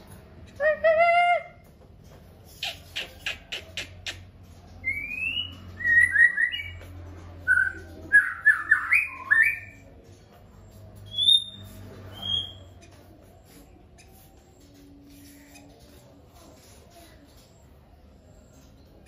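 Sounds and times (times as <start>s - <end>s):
songbirds chipping and whistling: 2.6s - 10.0s, 11.0s - 12.9s.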